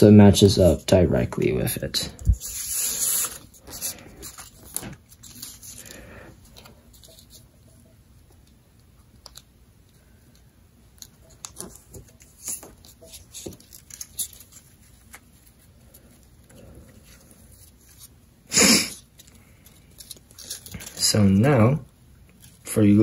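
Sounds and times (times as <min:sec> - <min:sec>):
paper being folded: 0:02.2 - 0:07.5, 0:10.9 - 0:18.2, 0:18.8 - 0:21.3.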